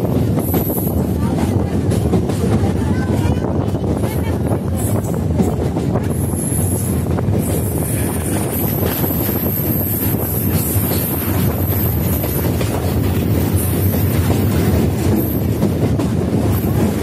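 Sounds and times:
train wheels rumbling on track: 0:00.0 - 0:17.0
wind on microphone: 0:00.0 - 0:17.0.

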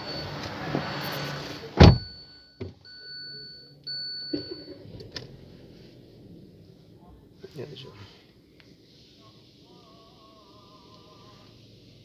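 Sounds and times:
car electronic warning tone: 0:00.0 - 0:01.2, 0:01.8 - 0:04.9
heavy thump: 0:01.8 - 0:02.8.

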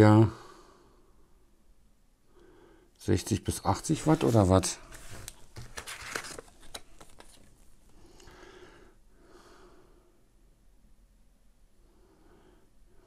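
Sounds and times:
plastic crinkling: 0:04.0 - 0:07.9
breathing through the nose: 0:08.0 - 0:10.2.

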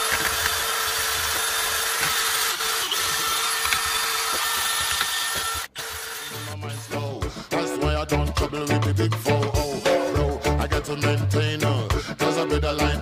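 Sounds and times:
drill spinning wire brush on metal: 0:00.0 - 0:06.6.

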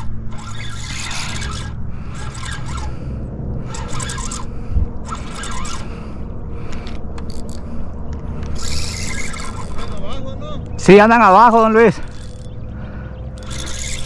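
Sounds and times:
fishing reel cranking raspily: 0:00.0 - 0:03.0, 0:03.6 - 0:06.0, 0:06.7 - 0:07.8, 0:08.4 - 0:10.1, 0:11.5 - 0:12.6, 0:13.3 - 0:14.0
low rumble: 0:00.0 - 0:14.0.

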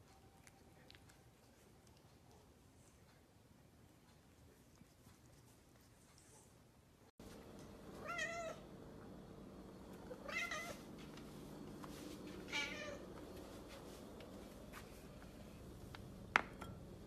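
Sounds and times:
cat meowing: 0:10.2 - 0:10.8.

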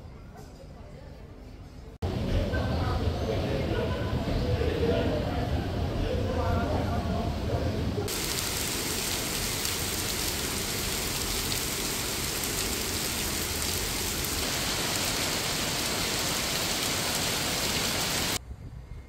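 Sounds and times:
hiss of falling water: 0:08.1 - 0:18.4.

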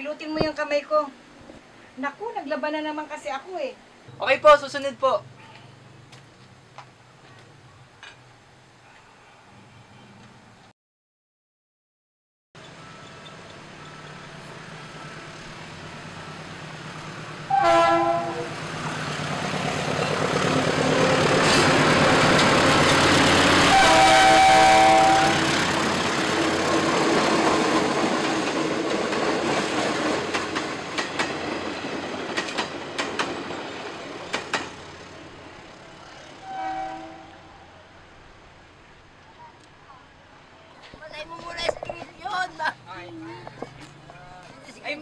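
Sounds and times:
train running noise: 0:12.6 - 0:39.0
train horn blasts: 0:17.5 - 0:18.6, 0:23.4 - 0:25.8, 0:36.3 - 0:37.8
wheels clacking over rail joints: 0:18.5 - 0:35.6.

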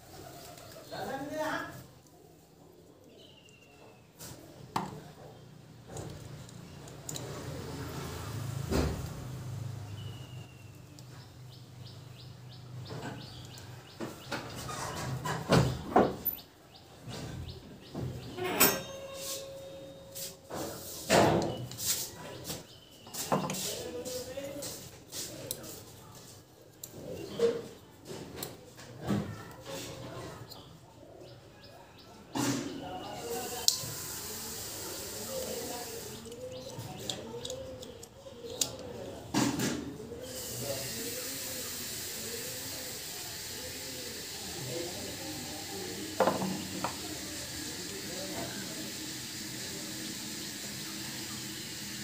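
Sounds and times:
small parts and tools clicking: 0:05.8 - 0:07.6, 0:35.2 - 0:39.2
faint ringing tone: 0:18.4 - 0:20.2.

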